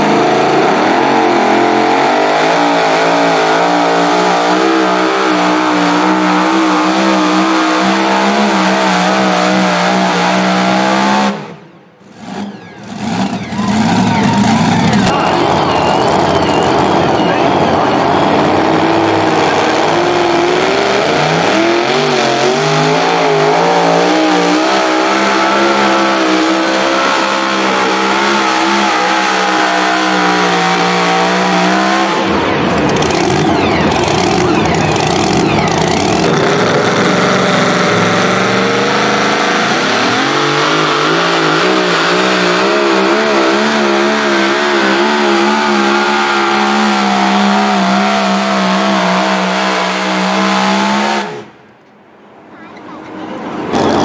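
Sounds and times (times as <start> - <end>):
second truck engine revving: 0.0 - 51.6, 53.7 - 54.0
truck engine at full throttle: 0.0 - 52.4, 53.3 - 54.0.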